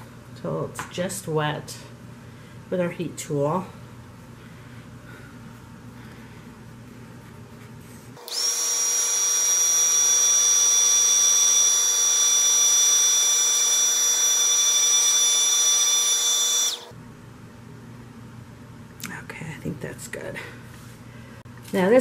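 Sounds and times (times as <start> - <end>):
heat tool fan whining: 0.0 - 17.0.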